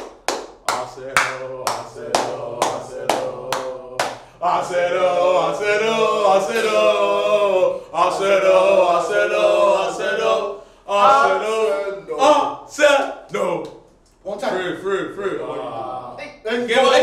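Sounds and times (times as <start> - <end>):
hand claps: 0.0 - 4.4, 6.5 - 6.9
men singing a chant: 0.7 - 12.6.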